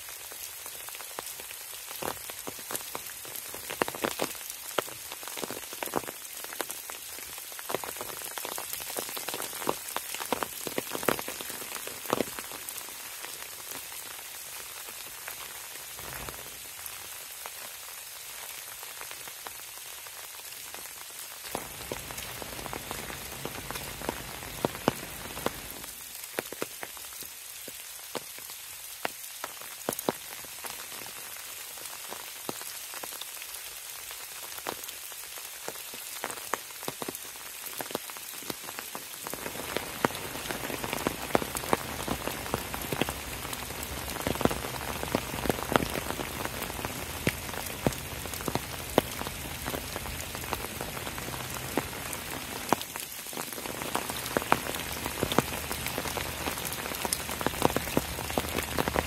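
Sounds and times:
raindrops ticking close by: 0:00.0 - 0:59.0
steady rain falling: 0:00.0 - 0:59.0.

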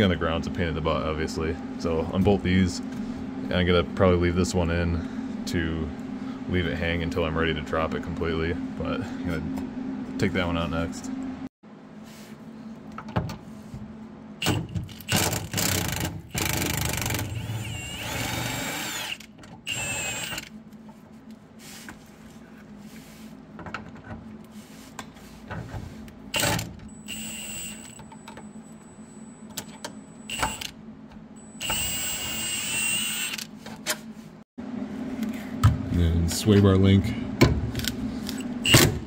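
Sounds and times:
cordless power tool whine: 0:15.1 - 0:20.5, 0:26.4 - 0:28.0, 0:31.6 - 0:33.4.

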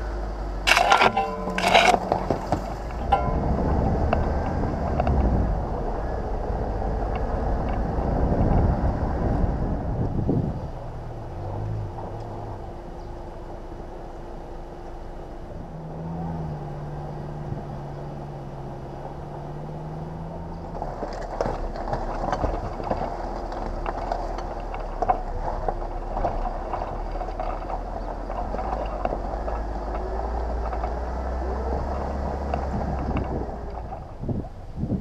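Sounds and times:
vehicle engine hum: 0:00.0 - 0:35.0
tyres crunching over loose rock: 0:00.6 - 0:05.6, 0:20.6 - 0:35.0.

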